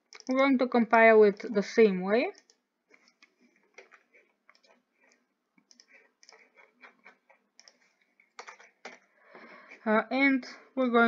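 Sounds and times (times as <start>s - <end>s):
faint keyboard clicking: 0.0s - 0.5s, 1.2s - 1.6s, 2.2s - 9.1s.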